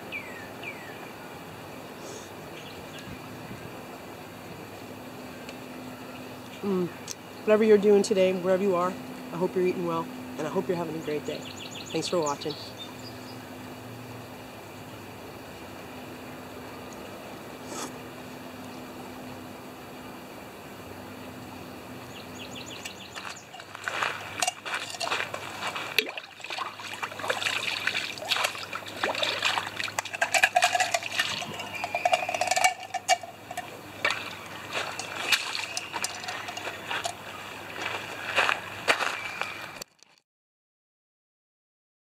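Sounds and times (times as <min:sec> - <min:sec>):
creek running water: 0:06.2 - 0:39.8
water splashing and sloshing: 0:22.8 - 0:39.1.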